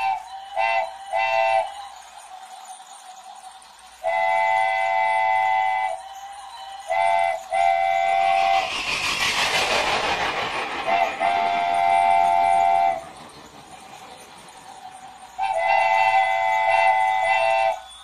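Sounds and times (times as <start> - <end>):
train horn blasts: 0.0 - 1.7, 4.1 - 6.0, 6.8 - 8.7, 10.8 - 13.1, 15.4 - 17.9.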